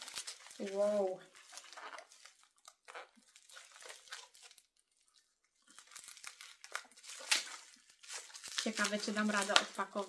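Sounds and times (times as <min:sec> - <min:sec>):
paper and plastic crinkling: 0:00.0 - 0:10.0.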